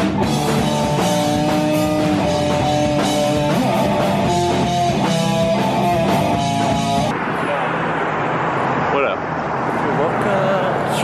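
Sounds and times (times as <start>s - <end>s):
bass guitar: 0.0s - 7.1s
electric guitar melody: 0.0s - 7.1s
steady drum beat: 0.0s - 7.1s.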